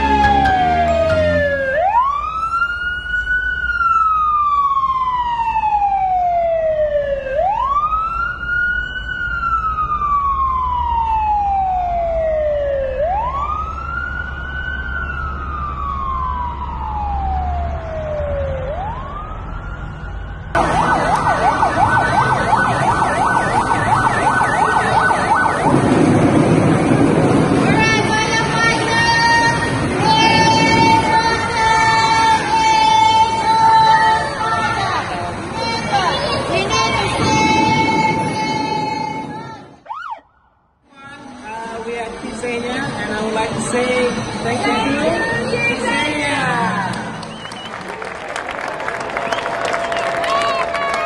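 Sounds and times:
fire truck siren wailing: 0.0 - 51.0.

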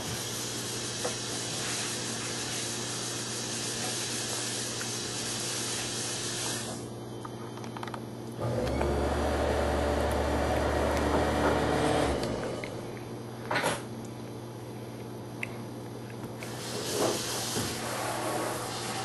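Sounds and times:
faint steady hum: 0.0 - 19.0
appliance motor humming: 8.4 - 13.0.

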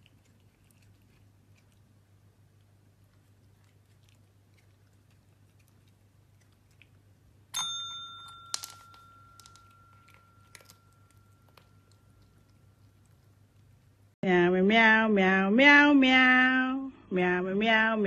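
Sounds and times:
call bell ringing: 7.6 - 12.2
paw tapping bell: 7.6 - 12.6.

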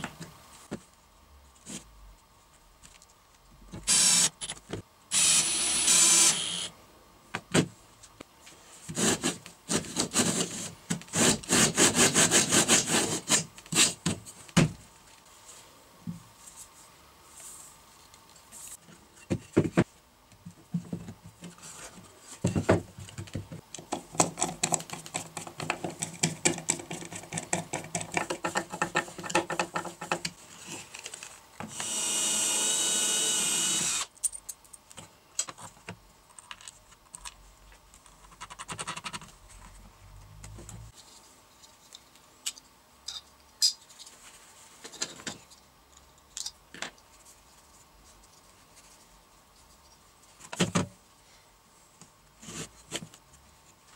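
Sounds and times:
cordless drill boring wood: 3.9 - 4.4, 5.1 - 6.7, 31.7 - 34.1.

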